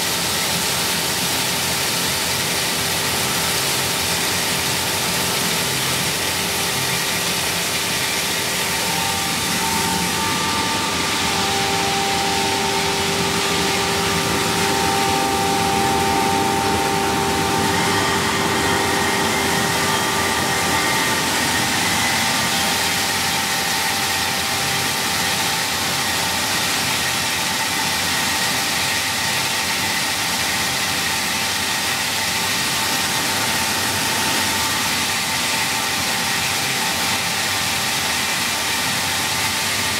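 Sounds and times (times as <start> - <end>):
machine running steadily: 0.0 - 39.9
steady whining tones: 4.6 - 27.4.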